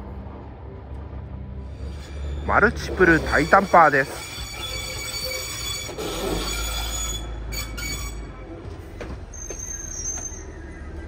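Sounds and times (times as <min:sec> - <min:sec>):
low machine rumble: 0:00.0 - 0:03.7
high-pitched whine: 0:00.0 - 0:08.6
high squealing tones: 0:01.7 - 0:08.5, 0:09.3 - 0:11.0.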